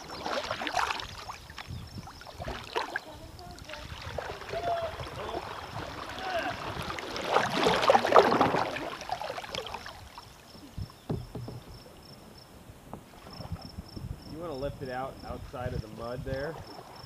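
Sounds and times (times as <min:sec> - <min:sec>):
paddle splashing in water: 0:00.0 - 0:12.0, 0:12.8 - 0:13.8, 0:16.4 - 0:17.0
water lapping: 0:00.0 - 0:12.3, 0:15.2 - 0:17.0
sharp knocks: 0:11.1 - 0:11.9.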